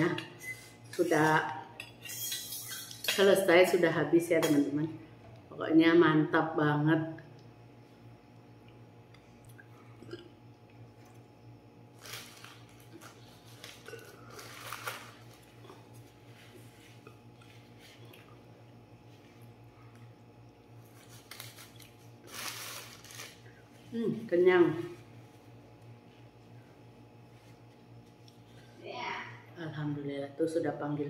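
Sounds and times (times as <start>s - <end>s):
paper tissues rustling: 12.0s - 15.5s, 20.9s - 23.8s.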